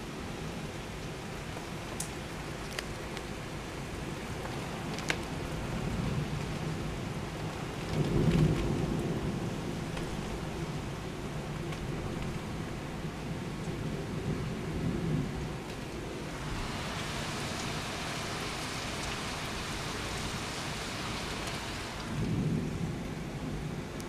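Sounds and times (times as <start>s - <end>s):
heavy rain hissing: 3.5s - 23.9s
thunder rumbling: 5.4s - 24.0s.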